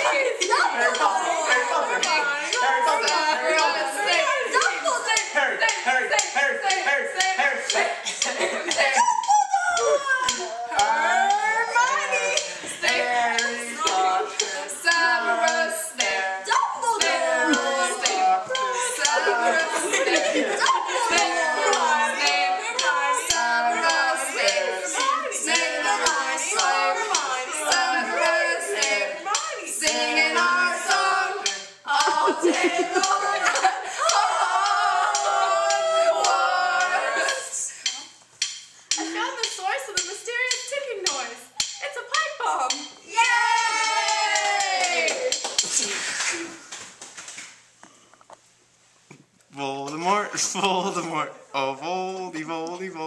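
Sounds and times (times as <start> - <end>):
young people singing a chant: 0.0 - 38.0
lively voices: 0.0 - 48.4, 49.1 - 53.0.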